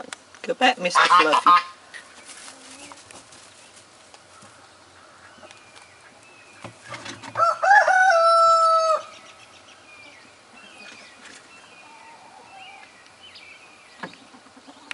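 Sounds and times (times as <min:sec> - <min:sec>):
small birds chirping: 0:00.0 - 0:07.4, 0:08.9 - 0:14.9
rooster crowing: 0:07.2 - 0:09.2.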